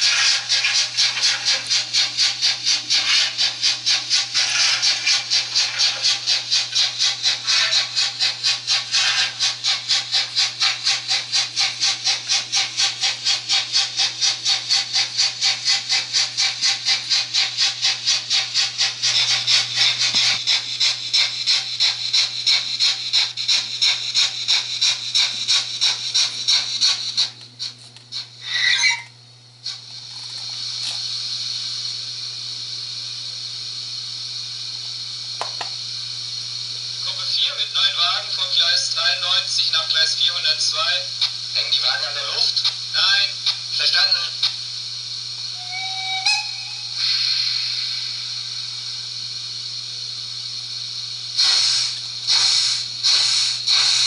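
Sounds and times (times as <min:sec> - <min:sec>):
escaping steam hiss: 0:00.0 - 0:27.3, 0:29.6 - 0:54.0
steam locomotive chuffing: 0:00.0 - 0:54.0
short squeal: 0:28.4 - 0:29.2.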